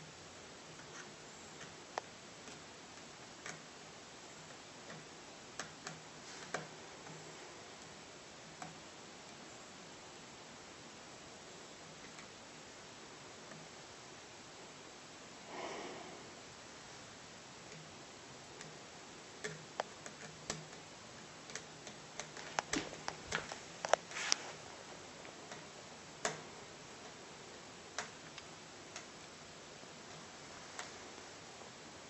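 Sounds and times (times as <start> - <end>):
rustle: 5.8 - 7.9, 21.4 - 27.2.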